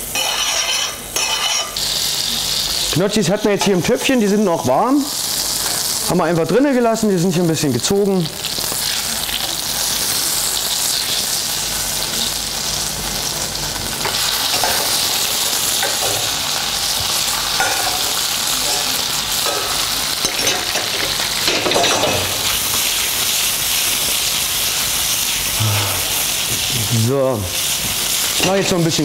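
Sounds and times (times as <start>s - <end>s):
food sizzling in butter: 0.0s - 29.0s.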